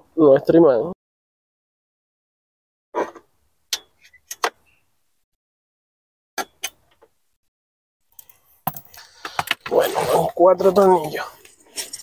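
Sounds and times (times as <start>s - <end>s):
handling noise: 8.7s - 9.4s.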